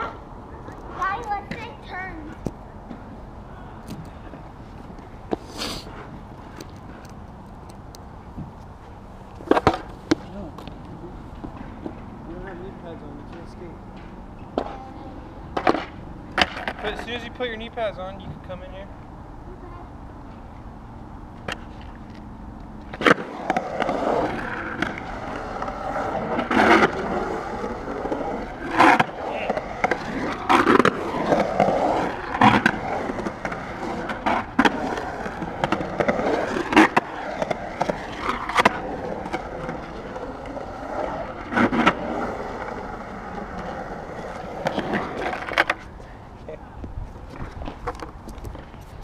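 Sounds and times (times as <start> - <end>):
skateboard wheels rolling on concrete: 0.0 - 49.0
skateboard clacks: 9.4 - 10.8, 15.5 - 17.1, 22.8 - 45.9.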